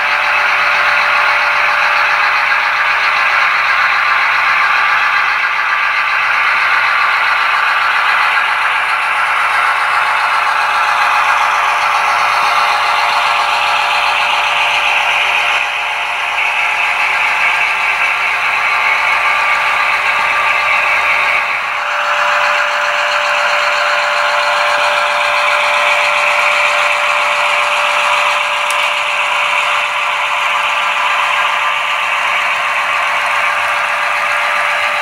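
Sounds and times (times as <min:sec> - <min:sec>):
model diesel engine sound: 0:00.0 - 0:35.0
model trains rattling on track: 0:00.0 - 0:35.0.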